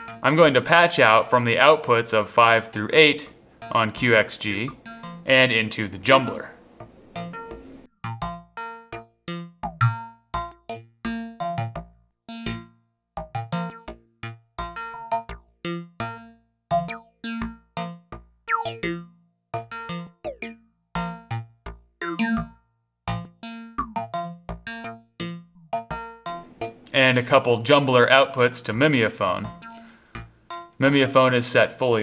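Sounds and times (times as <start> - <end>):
falling synth pitch sweeps: 18.5 - 18.9.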